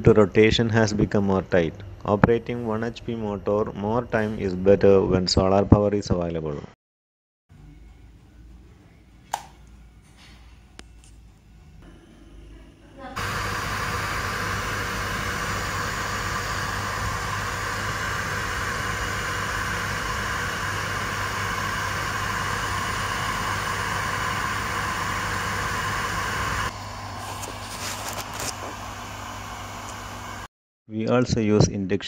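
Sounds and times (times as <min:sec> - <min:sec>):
water pump running: 0:13.2 - 0:30.5.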